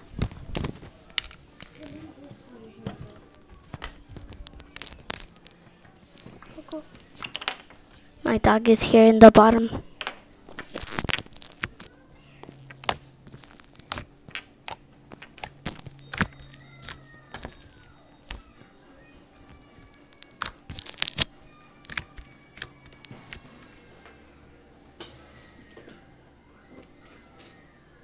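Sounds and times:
foam beads crackling and popping: 0:00.2 - 0:08.2, 0:10.0 - 0:18.6, 0:19.3 - 0:23.4
slime squelching: 0:10.4 - 0:18.6, 0:19.3 - 0:23.7.

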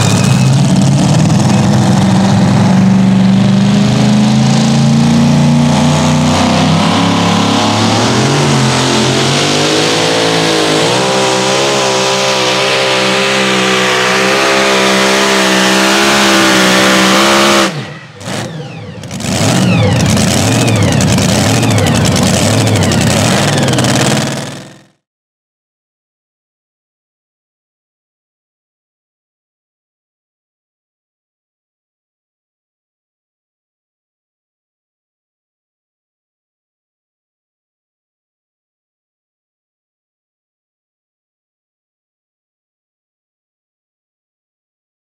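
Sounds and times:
engine running at full throttle: 0:00.0 - 0:25.0.

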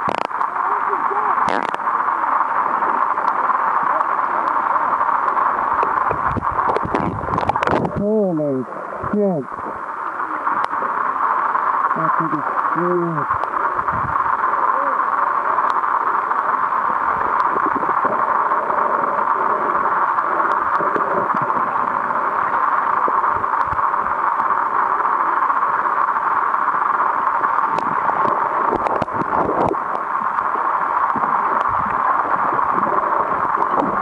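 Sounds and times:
underwater water noise: 0:00.0 - 0:34.0
faint clicks: 0:01.4 - 0:01.9, 0:10.5 - 0:10.9, 0:15.6 - 0:34.0.

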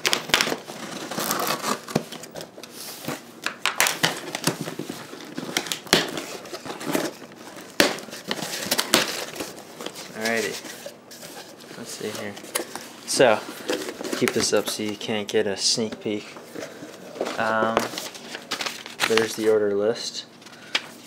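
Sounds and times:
packing tape tearing: 0:00.0 - 0:10.9.

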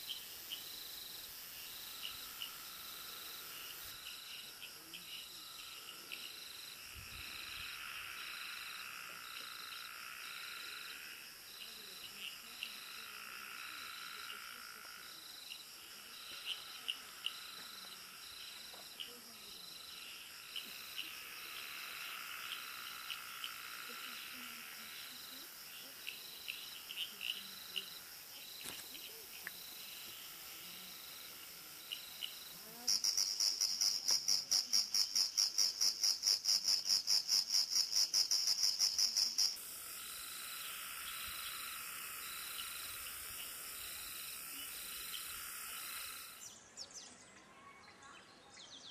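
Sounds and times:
cricket-like trilling: 0:00.0 - 0:46.9
high-pitched pulsing insect call: 0:00.0 - 0:47.3
short insect chirps: 0:13.7 - 0:47.0.

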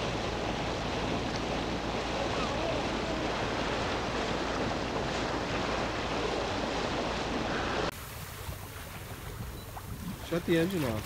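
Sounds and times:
water noise: 0:00.0 - 0:11.0
wind rushing over microphone: 0:00.0 - 0:11.0.

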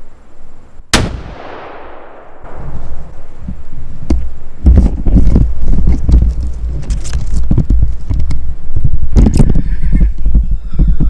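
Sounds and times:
rifle shot echoing: 0:00.9 - 0:03.2
rustling: 0:02.5 - 0:09.6.

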